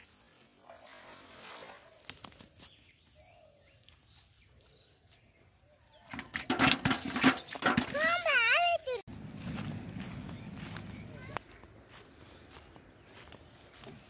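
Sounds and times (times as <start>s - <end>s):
fish flapping in metal bucket: 6.1s - 8.6s.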